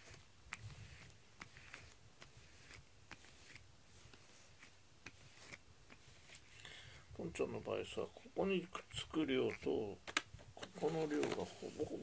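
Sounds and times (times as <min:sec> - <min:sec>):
brush stroking through fur: 0:00.0 - 0:06.5.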